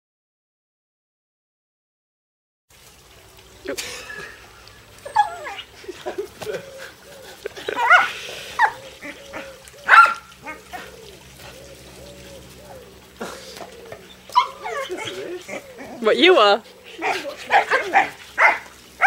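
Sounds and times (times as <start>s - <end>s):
dog whining and yelping: 5.0s - 5.8s, 6.4s - 16.1s, 16.7s - 18.7s.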